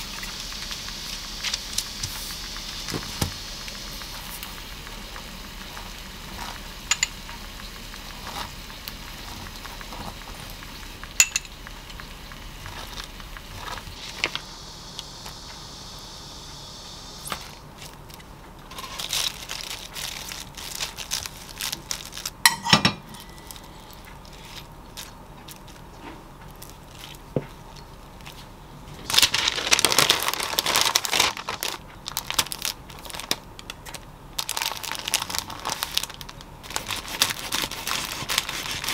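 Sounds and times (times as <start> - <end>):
parchment paper crinkling: 7.6 - 14.5, 17.3 - 22.5, 23.1 - 38.9.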